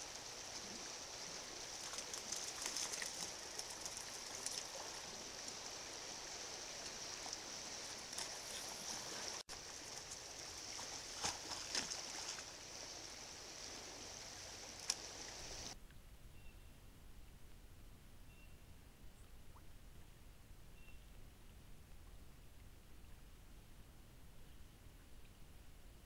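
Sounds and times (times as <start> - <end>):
creek running: 0.0 - 15.8.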